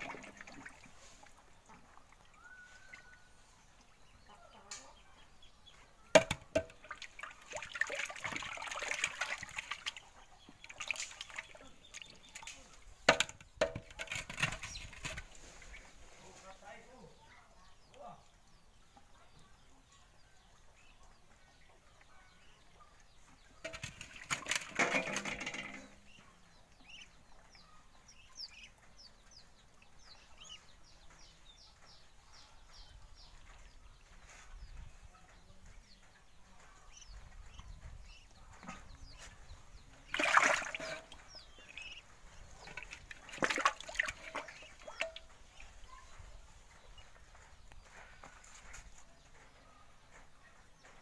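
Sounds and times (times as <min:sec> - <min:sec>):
fish splashing in metal pot: 0:06.2 - 0:10.0, 0:13.1 - 0:15.2, 0:23.6 - 0:25.9, 0:40.1 - 0:41.8, 0:42.6 - 0:45.2.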